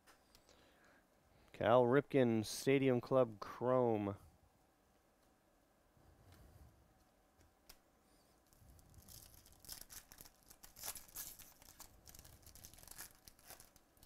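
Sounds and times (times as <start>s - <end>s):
foil wrapper crinkling: 8.5s - 14.0s.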